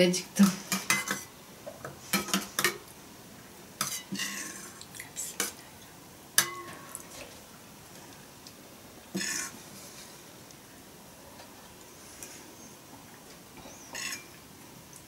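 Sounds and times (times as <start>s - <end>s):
spoons clinking on bowls: 13.9s - 14.3s.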